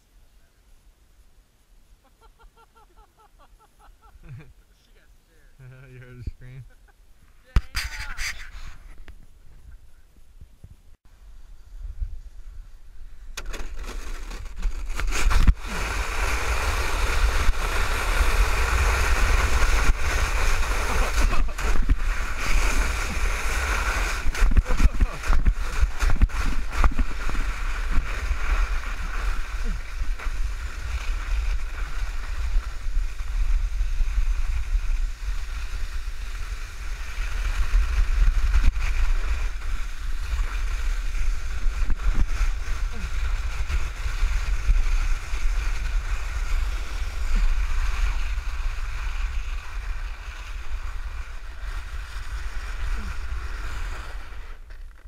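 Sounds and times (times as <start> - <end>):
sled scraping on snow: 7.5 - 9.7, 13.4 - 55.0
wind rumble on microphone: 7.6 - 55.0
sled knocking over bumps: 18.7 - 28.8.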